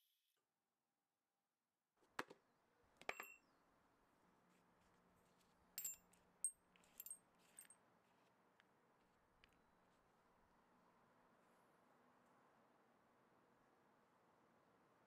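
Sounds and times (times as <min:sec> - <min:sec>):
small steel parts clinking: 0:05.8 - 0:07.8.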